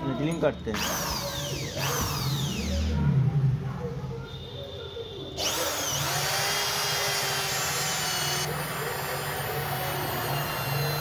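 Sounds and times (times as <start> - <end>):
electric drill whining: 0.8 - 2.8, 5.4 - 11.0.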